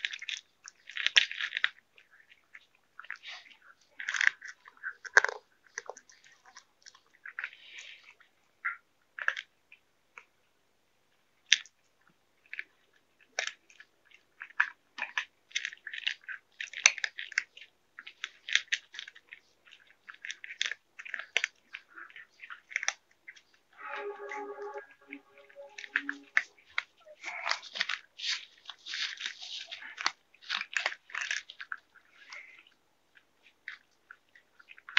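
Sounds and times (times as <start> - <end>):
cat chewing food: 0.0 - 8.4, 11.1 - 23.5, 27.9 - 34.9.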